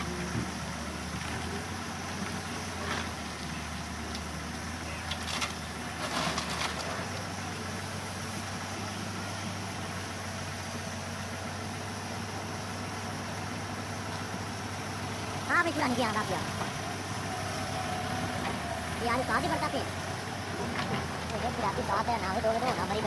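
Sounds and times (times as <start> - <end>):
diesel engines running at low revs: 0.0 - 23.0.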